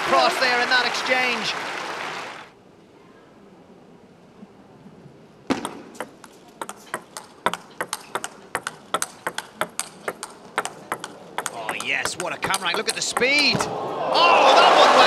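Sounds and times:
table tennis ball clicking: 0:05.6 - 0:13.7.

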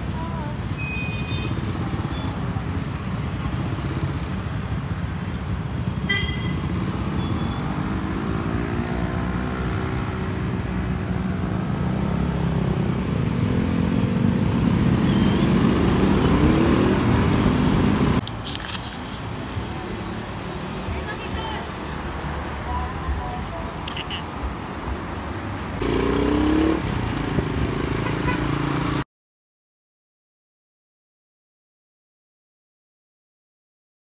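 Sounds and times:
traffic engine rumble: 0:00.0 - 0:29.0
engines revving as vehicles pull away: 0:06.6 - 0:18.3, 0:25.7 - 0:29.0.

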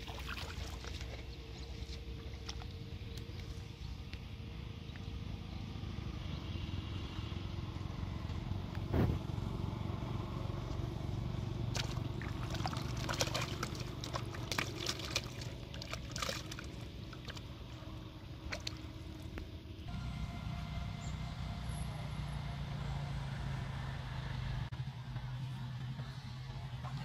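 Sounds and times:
fish splashing in water: 0:00.0 - 0:03.4, 0:11.7 - 0:19.4
single thump: 0:08.9 - 0:09.2.

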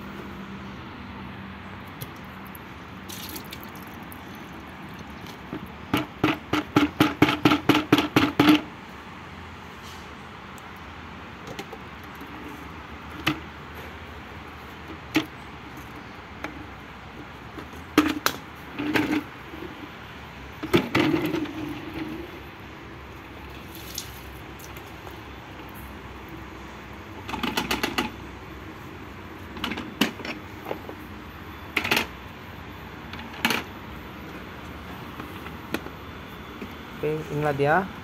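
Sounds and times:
water sloshing in plastic tank: 0:01.8 - 0:08.6, 0:23.2 - 0:25.8
water splashes: 0:02.0 - 0:05.7, 0:23.5 - 0:25.2.

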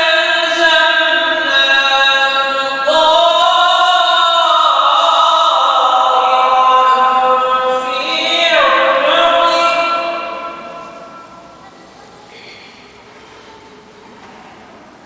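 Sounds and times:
man singing devotional chant: 0:00.0 - 0:11.3.

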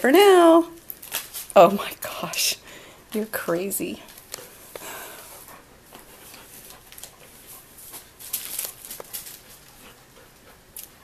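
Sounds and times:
clicks and rustles: 0:05.9 - 0:10.0.

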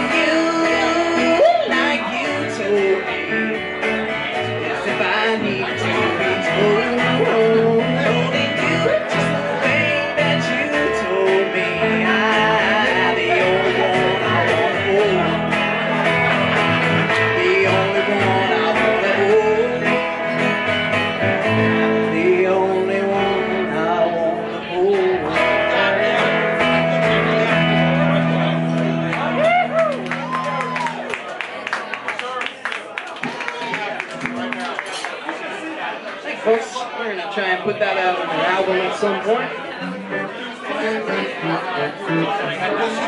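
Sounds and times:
plucked upright bass: 0:00.0 - 0:29.7, 0:39.8 - 0:43.0
melodic guitar lines: 0:00.0 - 0:31.1, 0:34.1 - 0:35.2, 0:38.4 - 0:43.0
country band playing: 0:00.0 - 0:36.9, 0:37.6 - 0:43.0.

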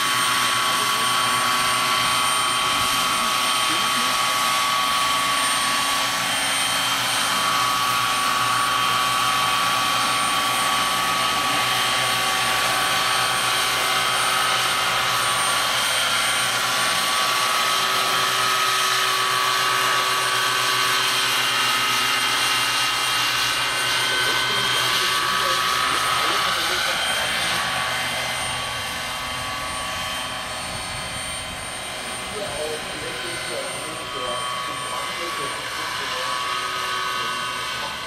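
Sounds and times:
helicopter rotor rush: 0:00.0 - 0:38.0
model helicopter whine: 0:00.0 - 0:38.0.

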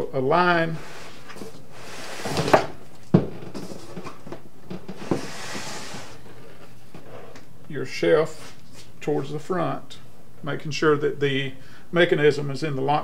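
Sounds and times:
wooden shelf sliding scrapes: 0:00.6 - 0:02.8, 0:04.9 - 0:07.4.

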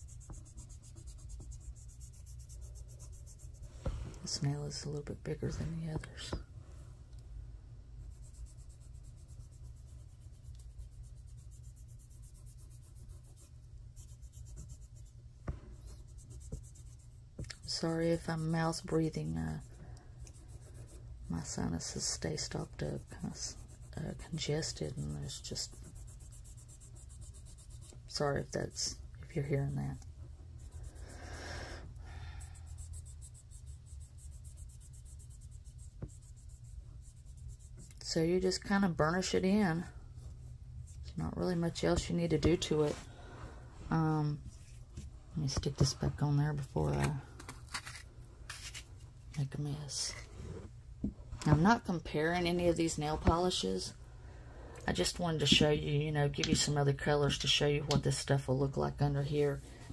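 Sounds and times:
sponge applicator rubbing on nail: 0:00.0 - 0:06.4, 0:08.0 - 0:39.7
low steady hum: 0:00.0 - 0:59.9.

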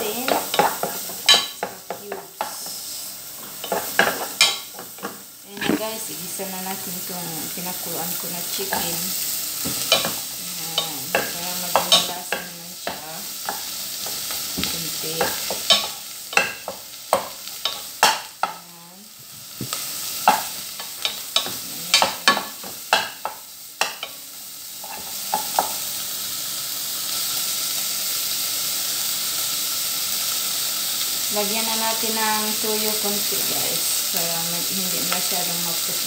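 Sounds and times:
chicken sizzling in a pot: 0:00.0 - 0:36.0
utensil knocking and scraping pot: 0:03.5 - 0:05.9, 0:09.6 - 0:10.2.

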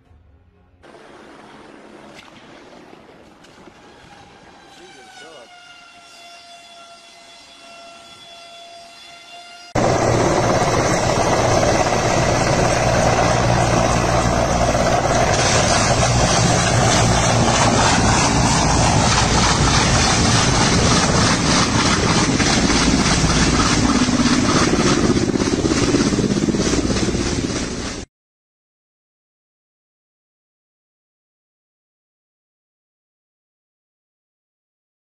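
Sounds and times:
helicopter rotor and turbine noise: 0:03.3 - 0:28.1.

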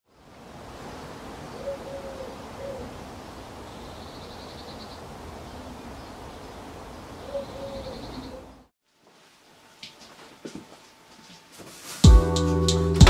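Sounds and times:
background hiss: 0:00.1 - 0:13.0
bird cooing call: 0:01.5 - 0:03.0, 0:07.2 - 0:08.7.

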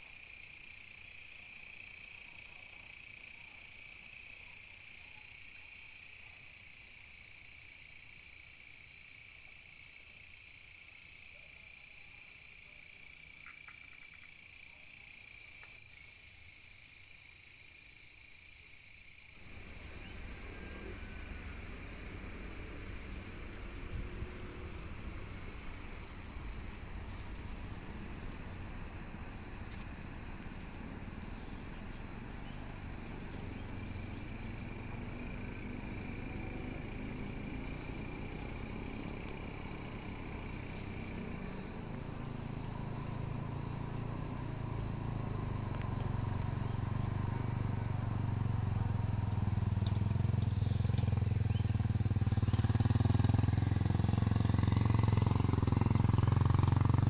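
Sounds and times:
insects shrilling in grass: 0:00.0 - 0:57.0
low rumble: 0:19.4 - 0:29.0.

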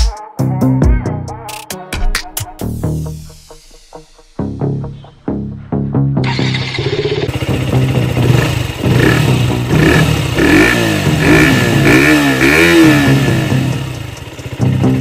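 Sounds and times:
motorcycle engine revving: 0:06.2 - 0:15.0.

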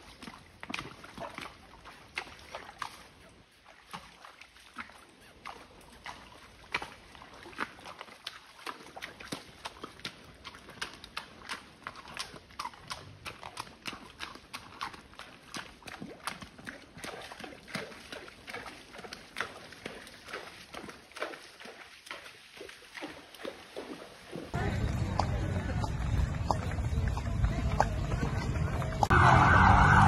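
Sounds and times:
hooves walking on wet stones: 0:00.0 - 0:29.2.

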